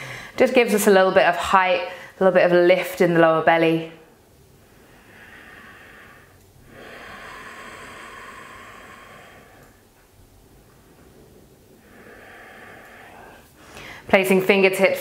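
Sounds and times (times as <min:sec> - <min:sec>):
woman breathing: 0:00.0 - 0:00.4, 0:01.9 - 0:02.2, 0:04.5 - 0:14.2.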